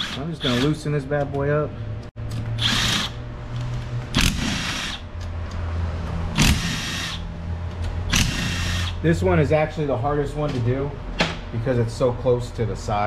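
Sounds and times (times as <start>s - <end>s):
impact driver bursts: 4.2s - 5.0s, 6.4s - 7.2s, 8.1s - 9.0s.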